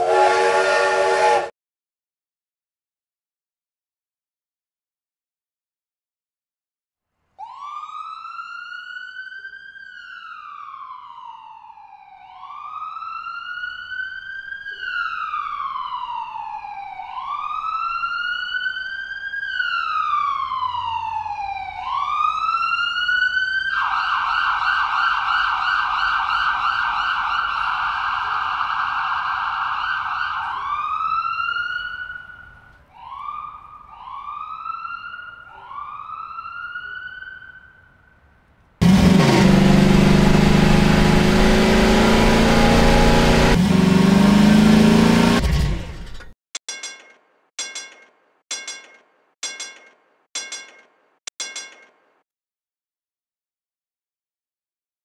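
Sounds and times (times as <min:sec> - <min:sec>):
siren wailing and warbling: 0:38.9 - 0:45.4.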